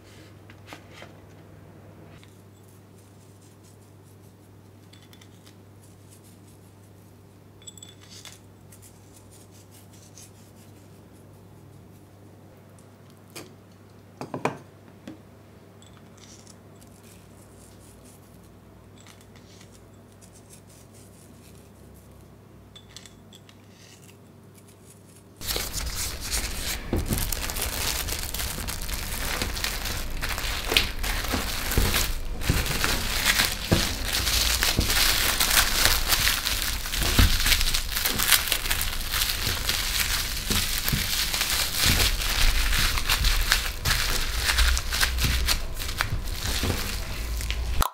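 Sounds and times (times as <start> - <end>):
cling film crinkling: 25.0 - 47.8.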